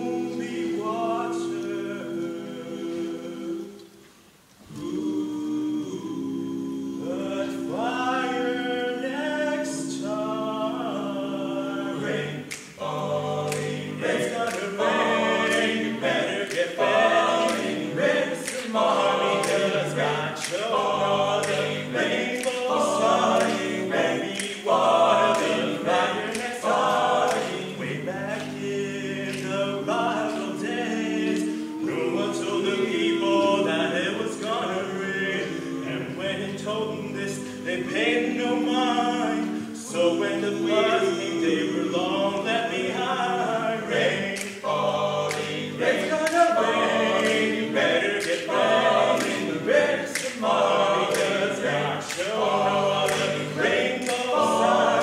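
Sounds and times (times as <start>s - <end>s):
a cappella group singing: 0.0s - 55.0s
steady sharp clicks: 44.3s - 55.0s.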